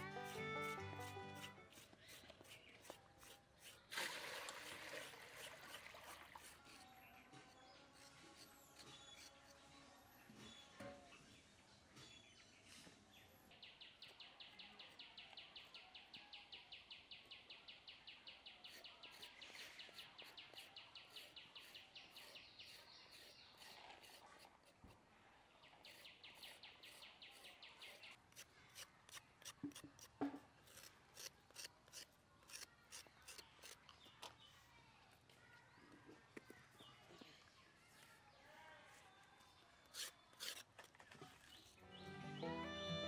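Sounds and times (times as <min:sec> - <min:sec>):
peeler scraping carrots: 0:00.0 - 0:03.9, 0:05.0 - 0:09.8, 0:18.6 - 0:25.0, 0:25.7 - 0:35.4, 0:38.9 - 0:41.8.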